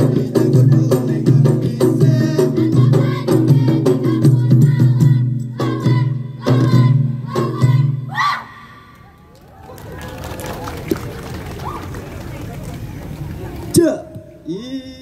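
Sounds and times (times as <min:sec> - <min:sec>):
voices singing a chant: 0:00.0 - 0:08.6
rhythmic claps and body slaps: 0:09.0 - 0:13.8.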